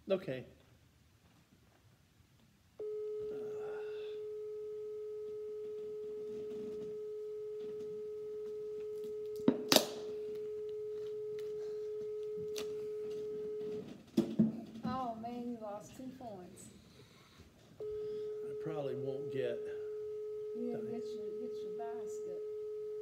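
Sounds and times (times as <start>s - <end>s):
telephone line tone: 2.8s - 14.0s, 17.8s - 23.0s.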